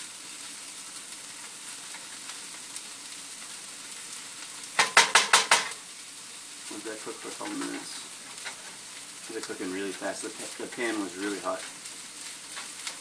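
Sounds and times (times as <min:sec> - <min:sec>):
vegetables sizzling in a frying pan: 0:00.0 - 0:13.0
spatula knocking on a pan: 0:04.8 - 0:05.8.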